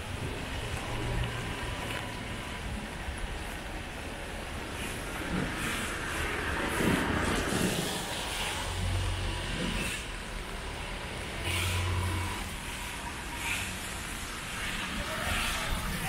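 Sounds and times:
motor vehicles passing: 5.5 - 16.0.

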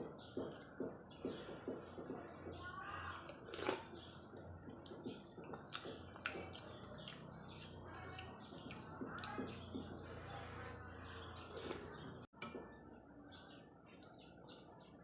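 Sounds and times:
person chewing: 3.3 - 4.0, 4.7 - 9.8, 11.4 - 12.2.

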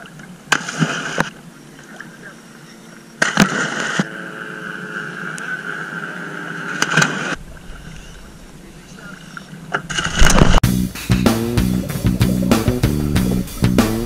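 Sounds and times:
steady hum: 0.0 - 14.0
divers splashing into water: 3.2 - 4.1, 6.9 - 14.0
water slapping against camera: 9.4 - 14.0.

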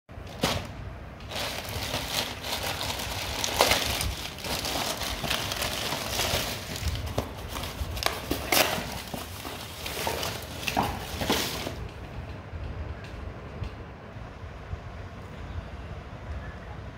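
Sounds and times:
plastic bag crinkling: 0.2 - 12.0.

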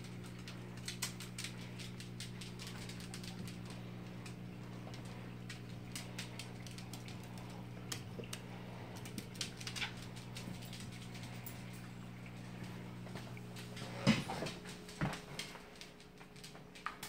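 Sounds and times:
dog claws clicking on tiles: 0.0 - 11.8, 13.8 - 17.0
steady low hum: 0.0 - 17.0.

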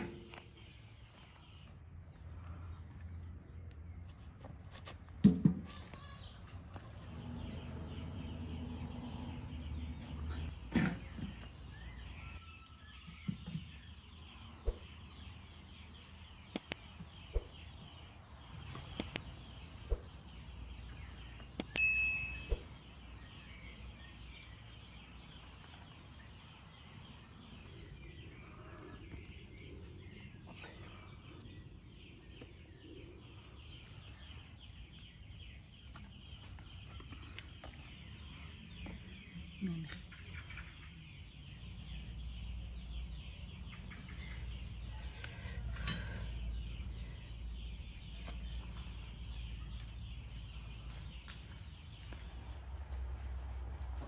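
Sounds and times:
small birds chirping: 0.0 - 54.0
sharp clicks: 16.5 - 16.8
metallic ding: 21.8 - 22.7.

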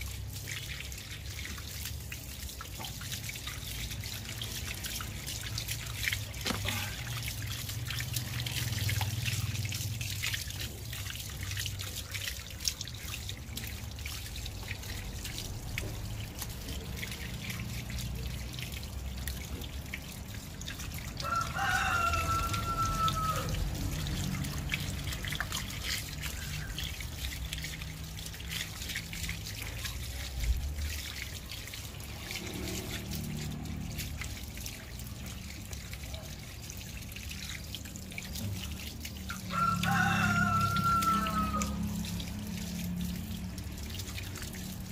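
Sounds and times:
water from hose splashing: 0.0 - 44.9
rooster crowing: 21.2 - 23.6, 39.5 - 42.1.

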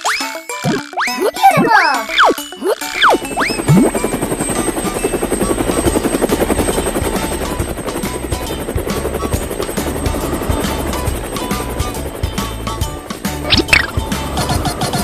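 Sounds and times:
children's music with bass line: 0.0 - 4.0
rapid fluttering whir: 1.6 - 15.0.

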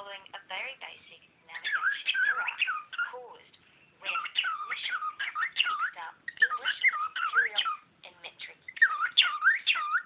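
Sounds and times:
cockatiel chattering: 1.5 - 3.2, 4.0 - 10.0.

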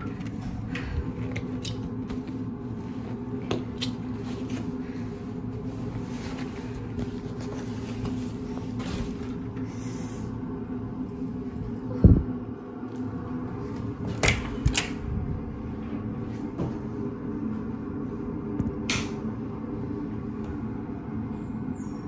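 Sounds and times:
machinery and ventilation hum: 0.0 - 22.0.

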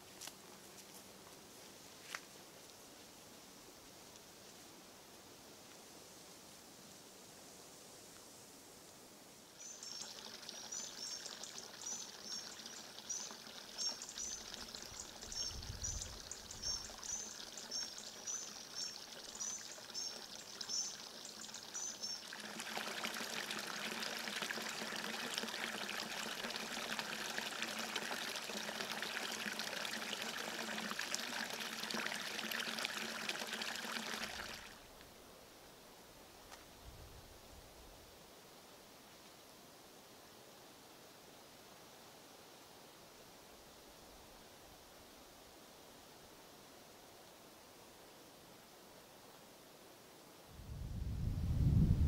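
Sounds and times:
forest brook trickling: 9.5 - 35.2
small bird chirping: 9.6 - 22.3.

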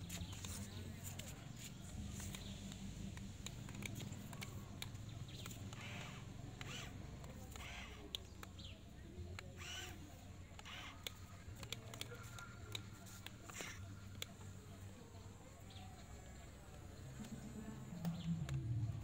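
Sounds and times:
small sharp clicks: 0.0 - 14.5
birds chirping: 0.0 - 18.5
faint low hum: 0.0 - 19.0.

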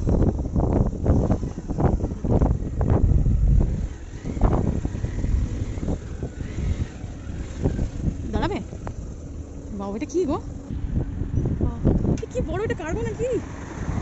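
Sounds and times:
road traffic rumble: 0.0 - 14.0
wind buffeting microphone: 0.0 - 14.0.

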